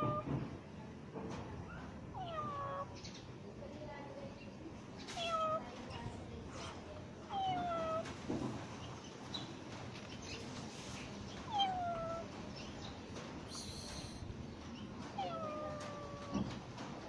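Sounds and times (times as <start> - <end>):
cat meowing: 2.1 - 3.0, 5.1 - 5.7, 7.3 - 8.2, 11.5 - 12.3, 15.1 - 16.6.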